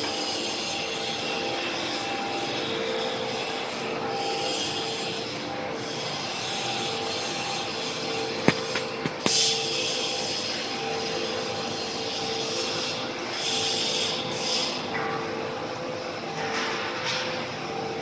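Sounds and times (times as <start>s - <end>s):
machine humming and hissing: 0.0s - 18.0s
sharp knocks: 8.4s - 9.4s.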